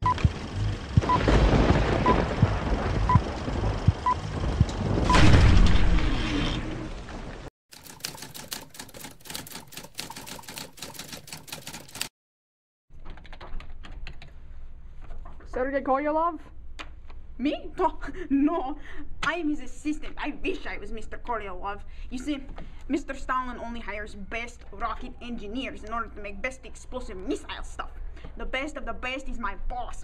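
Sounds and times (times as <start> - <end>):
noisy crackle: 0.0 - 7.5
rapid clicks: 7.7 - 12.1.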